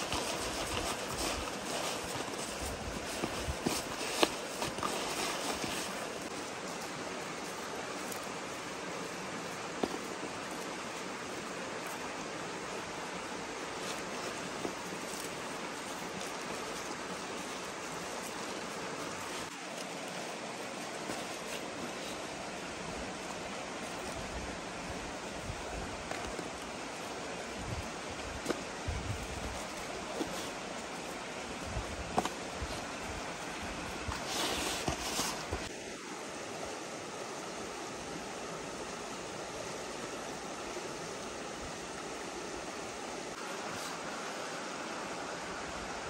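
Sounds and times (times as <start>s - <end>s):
hands rubbing fish in plastic basin: 0.0s - 6.4s
outdoor background hiss: 0.0s - 46.0s.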